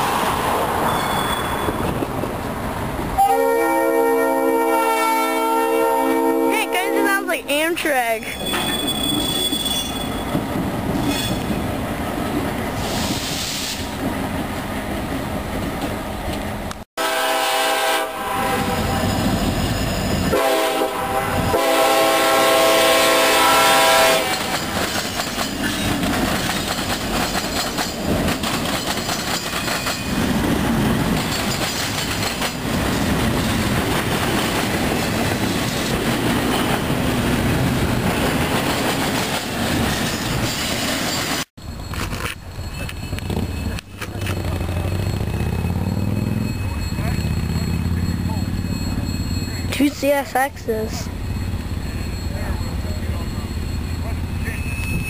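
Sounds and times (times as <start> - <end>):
container train rolling by: 0.0 - 55.0
diesel locomotive rumbling past: 0.0 - 55.0
locomotive horn blasts: 3.2 - 7.4, 17.0 - 19.1, 20.3 - 24.5.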